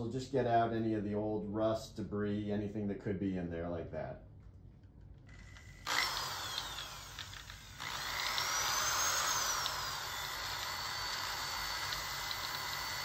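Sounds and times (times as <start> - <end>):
cordless drill whining: 5.3 - 13.0.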